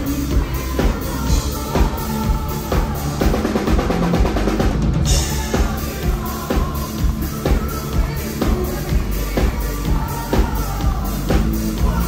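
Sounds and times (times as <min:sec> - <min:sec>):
metal band playing live: 0:00.0 - 0:12.0.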